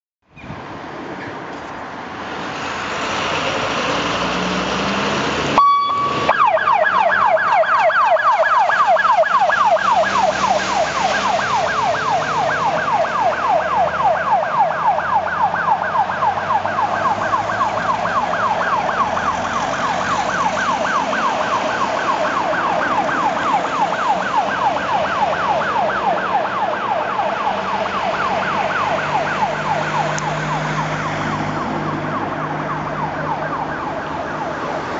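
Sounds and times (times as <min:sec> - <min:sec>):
vehicle noise: 0:00.2 - 0:34.9
siren wailing: 0:05.5 - 0:34.9
short steady tone: 0:05.6 - 0:06.3.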